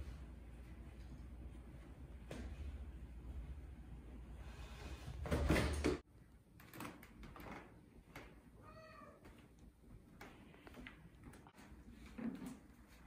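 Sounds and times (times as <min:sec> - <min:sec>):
cat meowing: 0:08.6 - 0:09.2.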